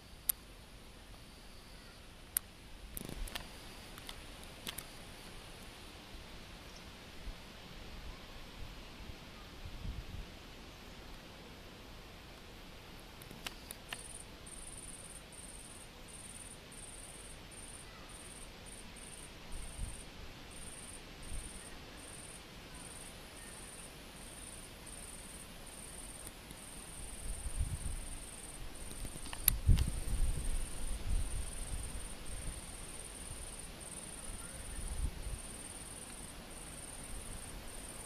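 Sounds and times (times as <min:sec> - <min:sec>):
insect chirping high-pitched: 0:13.4 - 0:38.0.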